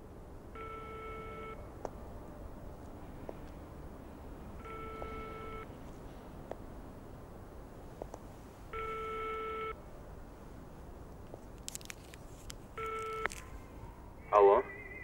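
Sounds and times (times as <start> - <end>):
telephone ringback tone: 0.6 - 1.6, 4.6 - 5.7, 8.7 - 9.8
line crackle: 11.1 - 13.6.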